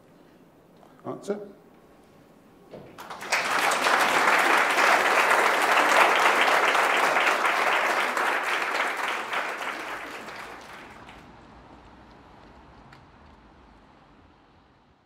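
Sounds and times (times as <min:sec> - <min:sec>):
audience applauding: 0:02.9 - 0:11.3.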